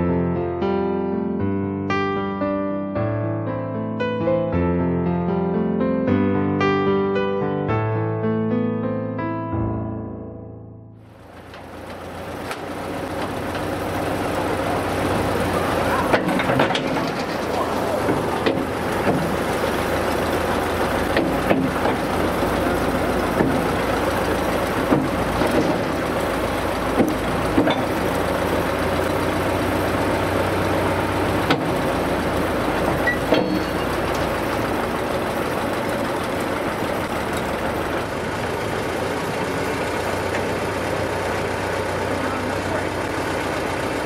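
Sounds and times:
backhoe engine running: 11.0 - 44.0
sharp metallic knocks: 16.0 - 28.6, 31.4 - 34.9.

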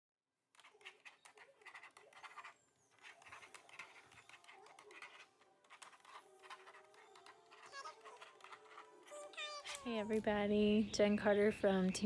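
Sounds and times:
stylus scratching drawing board: 0.5 - 10.0.

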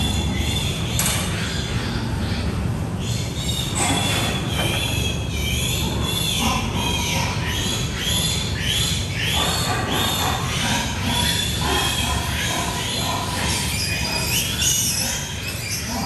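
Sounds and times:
piglets squealing: 3.6 - 16.0.

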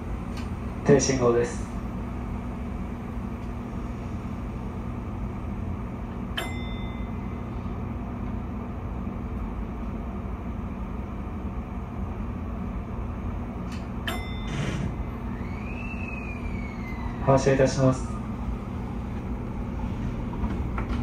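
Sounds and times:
train cab hum: 0.0 - 21.0
click: 0.3 - 0.5, 13.7 - 13.9.

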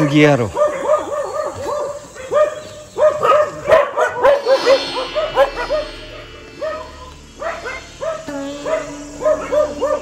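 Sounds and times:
dogs barking: 0.0 - 10.0
steady music: 4.2 - 10.0.

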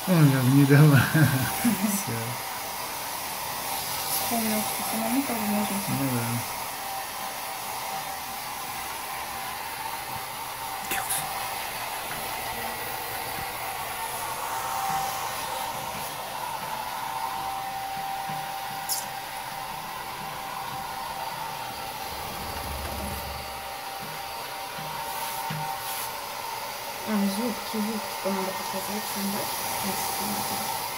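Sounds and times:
hair dryer running: 0.0 - 30.9.

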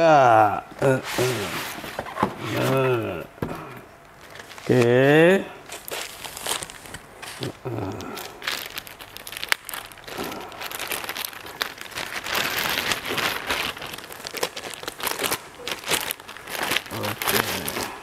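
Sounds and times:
plastic bag crinkling: 4.0 - 18.0.

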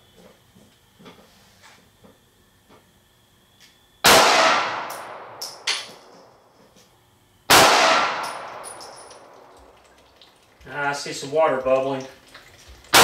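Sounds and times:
pistol shots: 4.0 - 5.9, 7.5 - 9.4
light clinks: 8.2 - 10.7.

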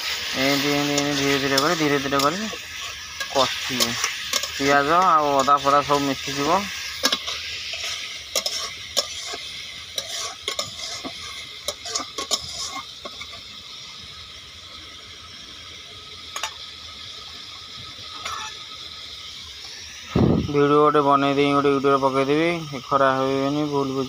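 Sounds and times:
utensil scraping metal pan: 0.0 - 13.2
food sizzling: 0.0 - 24.0.

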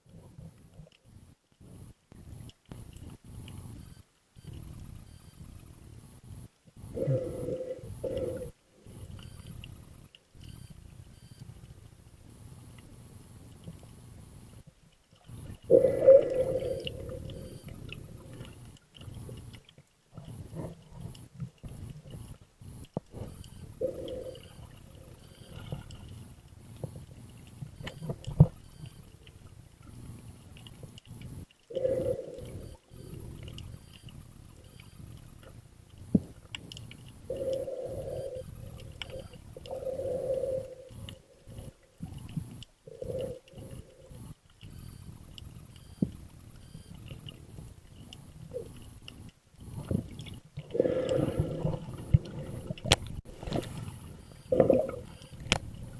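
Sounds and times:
muffled underwater noise: 6.8 - 10.6, 15.2 - 55.9.

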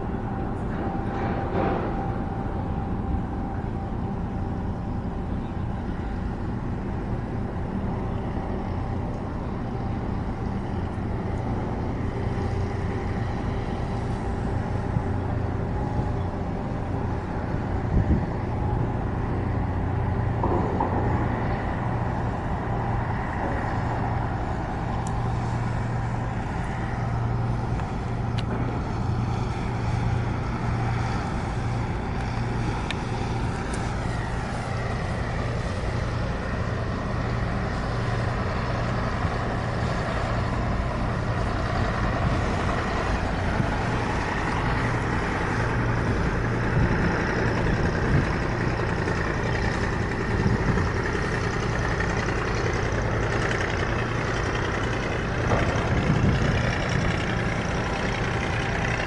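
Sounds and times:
engine rumbling: 0.0 - 59.0.

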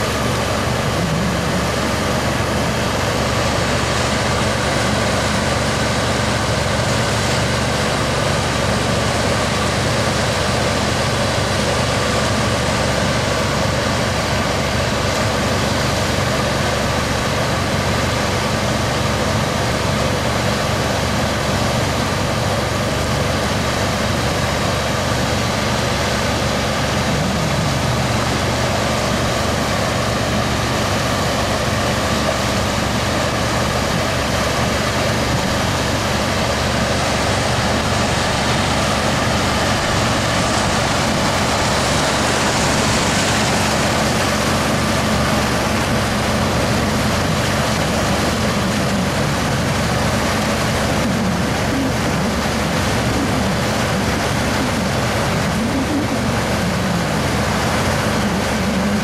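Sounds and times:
motor boat engine droning: 0.0 - 59.0
water rushing along hull: 0.0 - 59.0.

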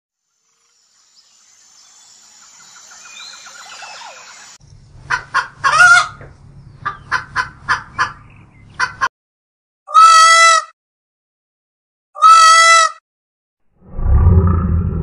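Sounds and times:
guinea fowl calling: 5.1 - 9.1
low hum: 13.8 - 15.0.

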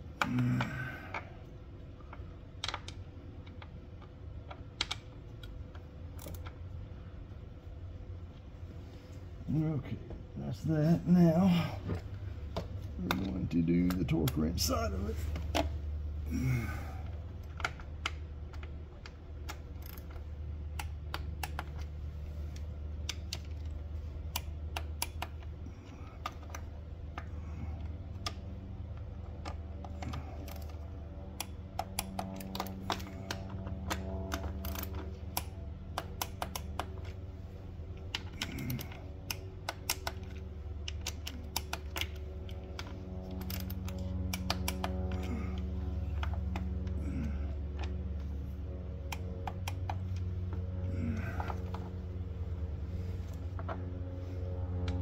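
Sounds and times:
ratcheting torque wrench clicking: 17.4 - 21.9, 29.4 - 30.8, 31.4 - 37.2, 38.0 - 47.2.

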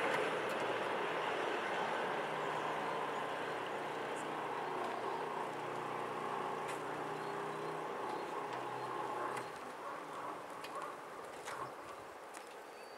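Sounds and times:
barrier motor humming: 0.0 - 9.6.

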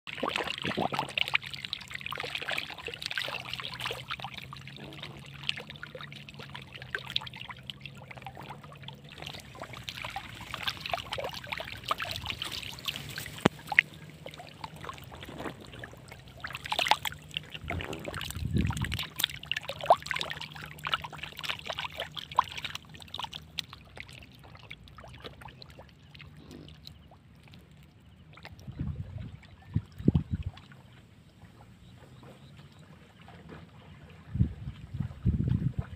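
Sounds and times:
fish thrashing and splashing: 0.1 - 27.6
water trickling: 0.1 - 35.9.

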